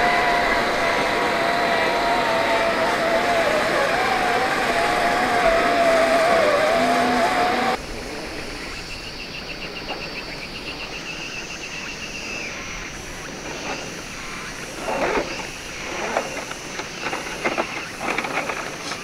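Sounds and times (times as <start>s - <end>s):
toy car electric motor whirring: 0.0s - 7.8s, 14.8s - 19.0s
insects chirping: 0.0s - 19.0s.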